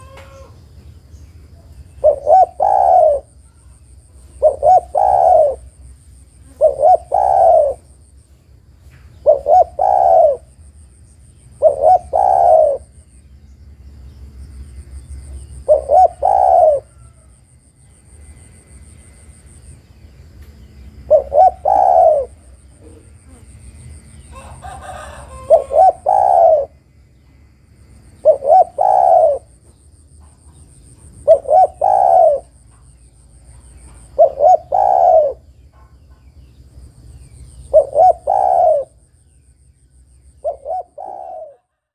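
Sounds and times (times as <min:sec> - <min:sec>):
dove cooing: 0:00.0 - 0:00.6, 0:01.9 - 0:05.8, 0:06.4 - 0:08.0, 0:09.2 - 0:10.6, 0:11.5 - 0:13.0, 0:15.6 - 0:17.4, 0:21.1 - 0:23.6, 0:24.3 - 0:26.8, 0:28.2 - 0:29.6, 0:31.1 - 0:32.6, 0:33.8 - 0:36.0, 0:37.6 - 0:39.0, 0:40.4 - 0:41.8.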